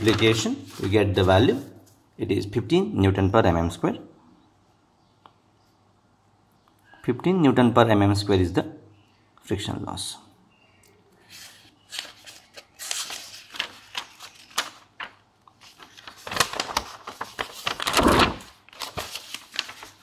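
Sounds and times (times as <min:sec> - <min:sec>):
paper rustling: 0:00.0 - 0:02.1, 0:11.2 - 0:20.0
paper sheets being handled: 0:00.0 - 0:02.1, 0:11.2 - 0:20.0.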